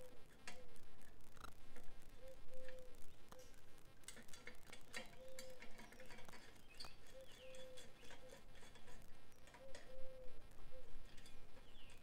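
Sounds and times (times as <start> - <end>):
metal clicks and taps: 4.1 - 6.9
bird or insect chirps: 5.2 - 8.4.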